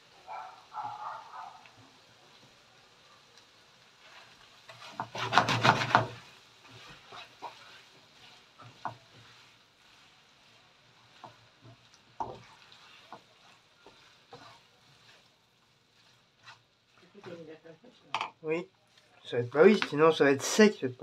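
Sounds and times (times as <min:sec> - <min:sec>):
spoon stirring pasta in a frying pan: 0:00.1 - 0:20.3
spoon knocking and scraping a pan: 0:04.0 - 0:10.0, 0:10.9 - 0:19.0.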